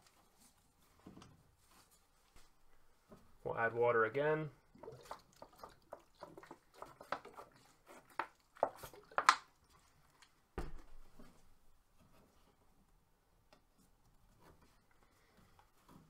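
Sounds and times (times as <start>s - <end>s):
faint handling sounds: 0.0s - 3.5s, 7.0s - 16.0s
water squirting into tubing: 4.6s - 10.4s
plastic bottle crinkling: 4.8s - 10.3s.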